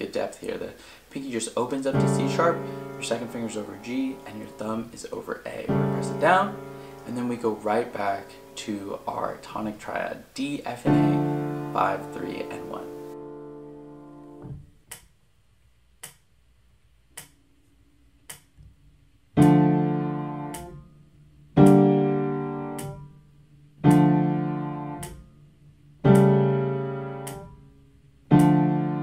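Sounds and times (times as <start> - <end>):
piano block chords: 1.6 - 9.8, 10.7 - 14.8, 19.3 - 29.0
metronome clicks: 1.9 - 4.7, 16.0 - 16.2, 17.1 - 17.4, 18.2 - 18.6, 20.4 - 20.8, 21.6 - 21.9, 22.7 - 23.0, 23.8 - 25.2, 26.1 - 26.4, 27.2 - 27.5, 28.3 - 28.7.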